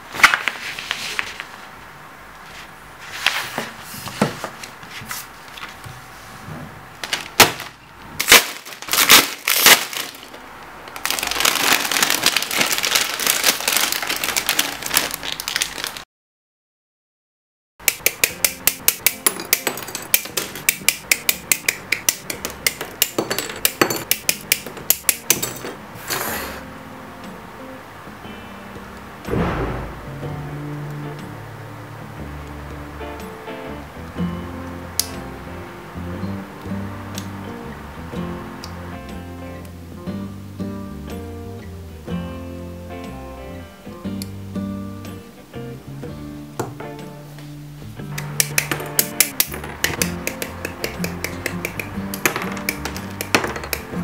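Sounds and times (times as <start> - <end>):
paper rustling: 0.0 - 1.7, 2.4 - 6.4, 7.0 - 16.0
plastic bag crinkling: 7.0 - 16.0
handling knocks: 48.2 - 54.0.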